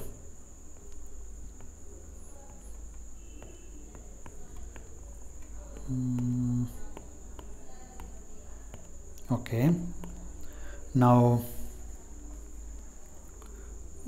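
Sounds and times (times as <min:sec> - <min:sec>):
stylus tapping on a tablet screen: 0:00.7 - 0:10.6
man humming: 0:05.8 - 0:06.8.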